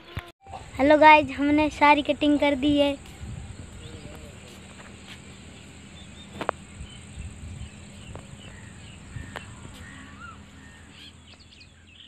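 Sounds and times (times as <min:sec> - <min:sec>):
bird chirps: 0:03.5 - 0:12.0.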